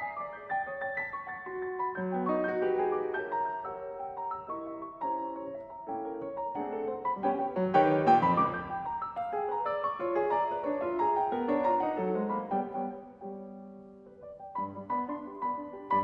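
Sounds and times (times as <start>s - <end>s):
grand piano playing: 0.0s - 16.0s.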